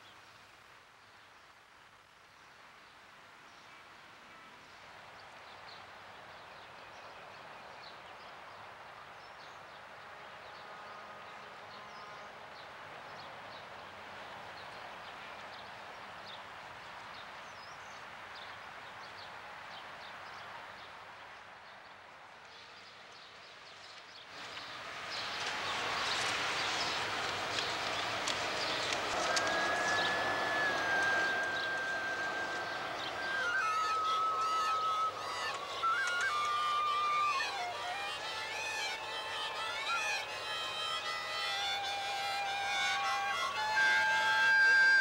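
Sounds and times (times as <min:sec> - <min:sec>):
steady hiss: 0:24.4 - 0:45.0.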